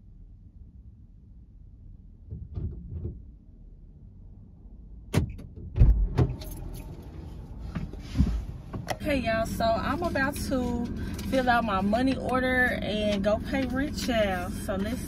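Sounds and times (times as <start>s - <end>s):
car door thumps: 2.3s - 3.3s, 5.1s - 6.4s.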